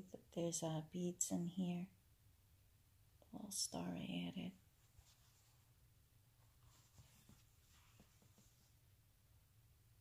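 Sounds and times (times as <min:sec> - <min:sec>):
faint rustling: 0:04.6 - 0:09.0.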